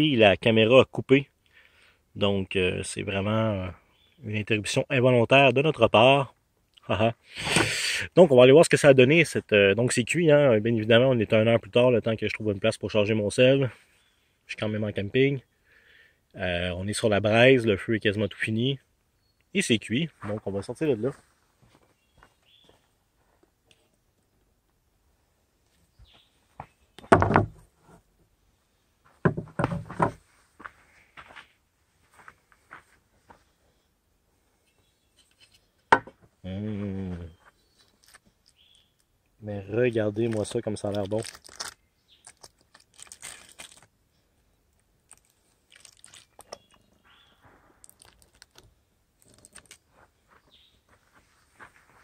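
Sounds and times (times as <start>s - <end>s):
aluminium foil crinkling: 37.8s - 38.8s, 40.3s - 43.9s, 45.0s - 46.8s, 47.8s - 49.9s.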